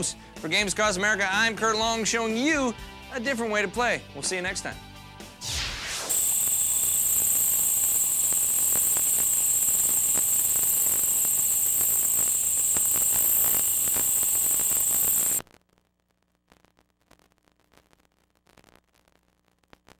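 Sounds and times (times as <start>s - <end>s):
steady high-pitched hiss: 5.6s - 15.5s.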